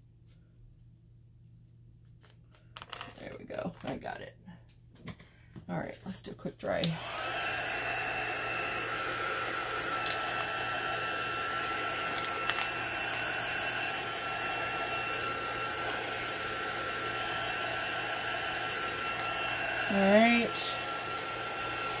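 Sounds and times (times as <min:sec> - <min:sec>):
heat tool blowing with fan whine: 0:06.6 - 0:22.0.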